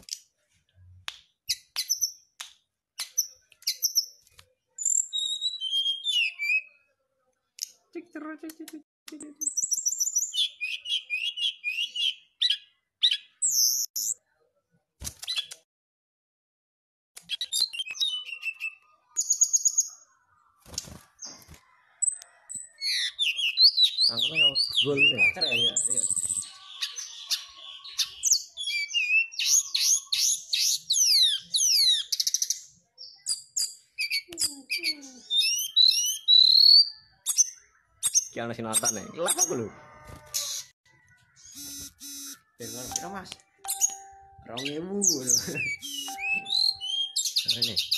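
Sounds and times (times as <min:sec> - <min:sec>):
bird singing: 0:04.8 - 0:06.9, 0:09.3 - 0:14.2, 0:17.3 - 0:47.9.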